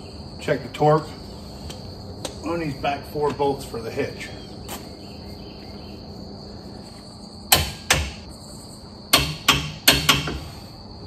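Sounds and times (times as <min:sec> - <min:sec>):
crickets chirping: 0:00.0 - 0:11.0
sharp knocks on metal hitch: 0:07.5 - 0:08.2, 0:09.1 - 0:10.4.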